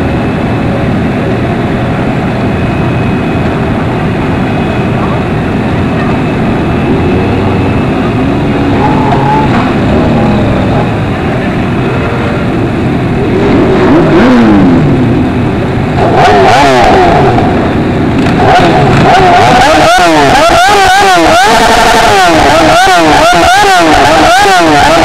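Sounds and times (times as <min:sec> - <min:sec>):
motorcycle engines revving: 0:00.0 - 0:25.0.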